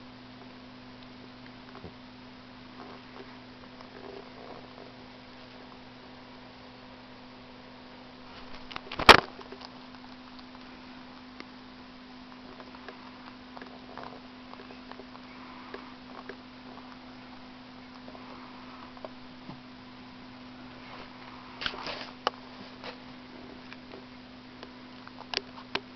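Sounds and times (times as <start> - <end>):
steady low hum: 0.0 - 25.9
cat purring and breathing: 2.6 - 6.3, 12.2 - 19.3
sharp clicks and rustles: 8.3 - 11.5.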